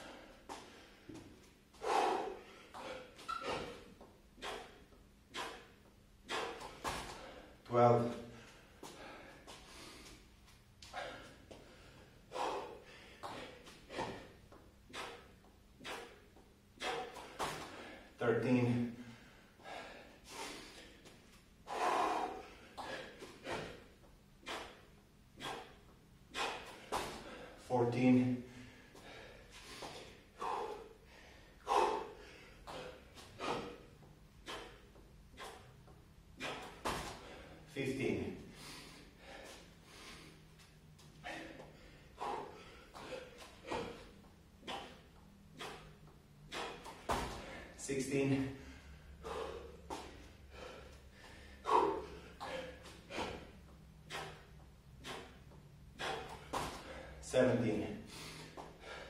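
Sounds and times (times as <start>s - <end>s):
man breathing hard: 0.0s - 59.0s.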